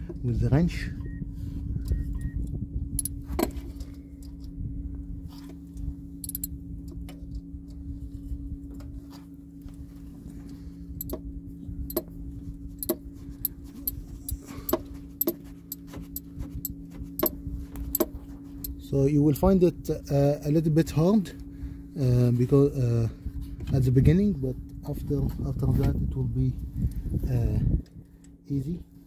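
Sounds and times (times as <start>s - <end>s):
low hum: 0.0s - 29.0s
socket wrench clicking: 6.2s - 6.5s.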